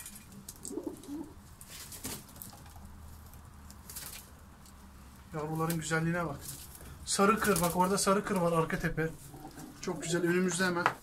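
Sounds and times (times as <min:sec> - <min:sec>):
pigeons cooing: 0:00.6 - 0:01.4, 0:09.2 - 0:10.6
wings fluttering: 0:06.4 - 0:08.0.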